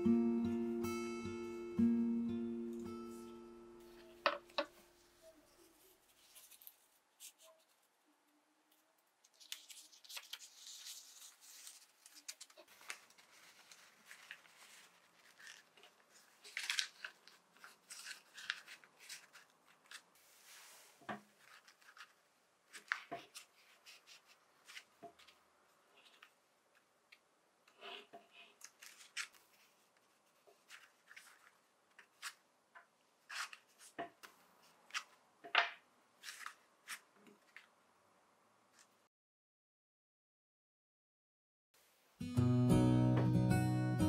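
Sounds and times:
paper filter crinkling: 5.3 - 8.0, 8.7 - 27.2, 28.3 - 32.4, 36.2 - 37.8.

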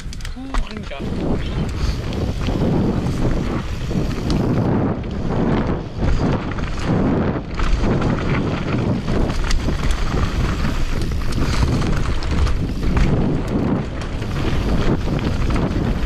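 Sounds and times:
bike rattling over rocks: 0.0 - 16.0
steady rumble: 0.0 - 16.0
wind buffeting microphone: 0.0 - 16.0.

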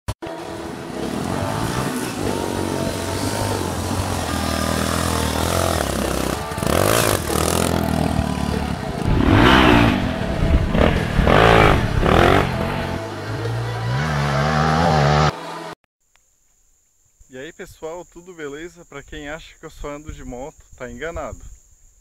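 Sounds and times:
dirt bike engines revving: 0.2 - 15.7.

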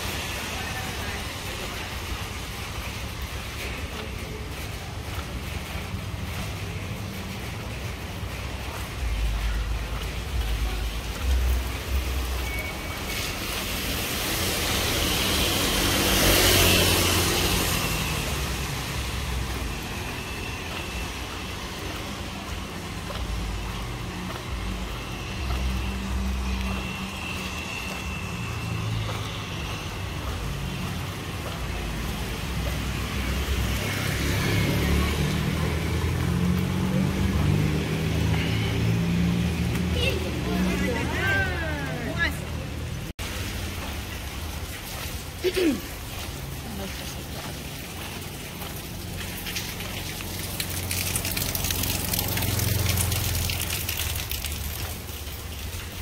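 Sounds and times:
vehicle passing close: 13.8 - 20.8.

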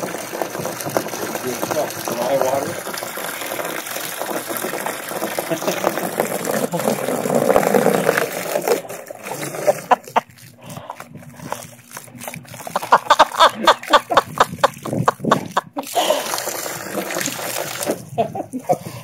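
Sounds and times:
hose water splattering: 0.0 - 19.0.

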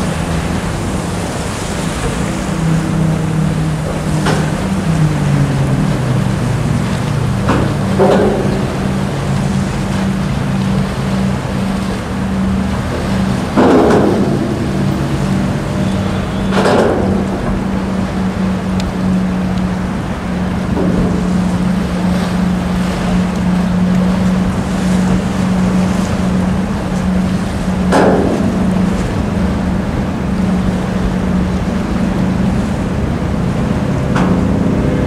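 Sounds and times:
low engine drone: 0.0 - 35.0.

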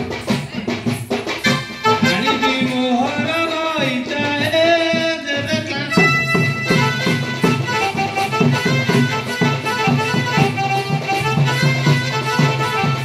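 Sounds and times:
drums beating: 0.0 - 13.0
reedy accordion-like melody: 1.4 - 3.0, 5.8 - 13.0.

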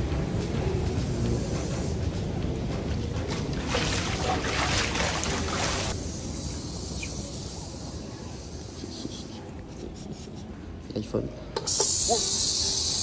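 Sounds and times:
spraying water hiss: 4.6 - 9.3, 11.6 - 13.0.

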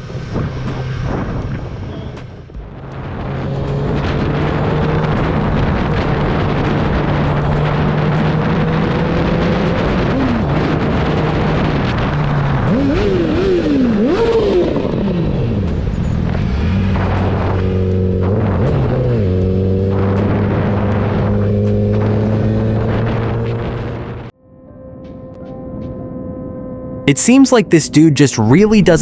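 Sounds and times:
motorcycle engine revving: 0.0 - 24.3
road noise: 0.0 - 24.3
wind rush: 0.0 - 24.3.

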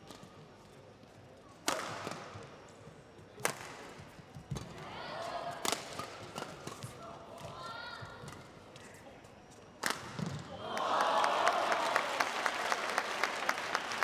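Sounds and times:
rackets hitting shuttlecock: 1.6 - 2.4, 5.6 - 7.5.

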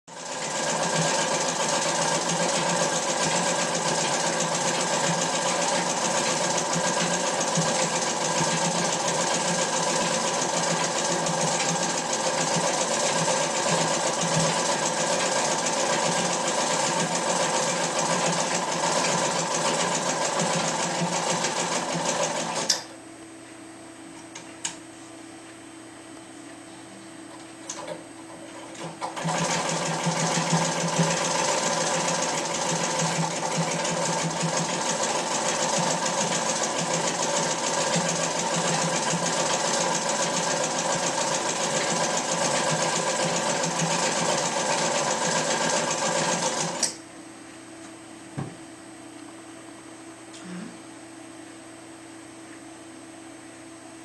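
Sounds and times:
sewing machine running: 0.1 - 22.8, 28.7 - 47.0
sewing machine clicks: 28.8 - 47.0.

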